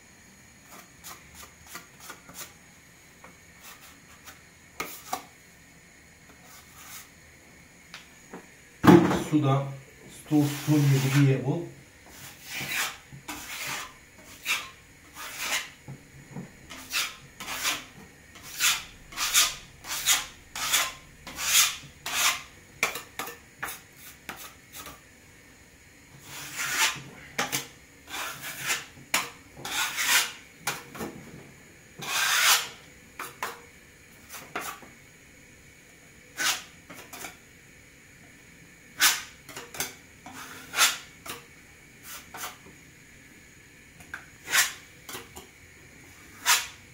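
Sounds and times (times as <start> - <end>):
hand tool rasping over filler: 12.1 - 15.8, 16.7 - 22.5, 26.2 - 28.9, 29.6 - 30.4, 32.0 - 32.8.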